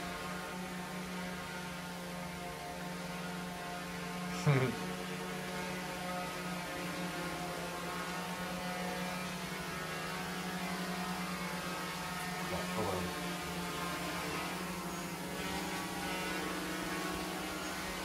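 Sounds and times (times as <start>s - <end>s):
drone propellers buzzing: 0.0s - 18.0s.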